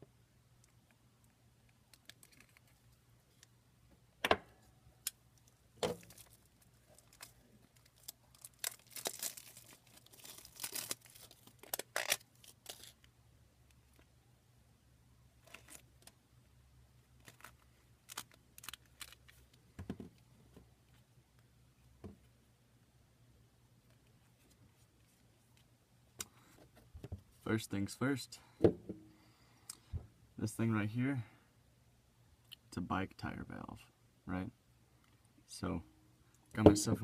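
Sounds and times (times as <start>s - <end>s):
rubber rustling: 5.8s - 13.1s.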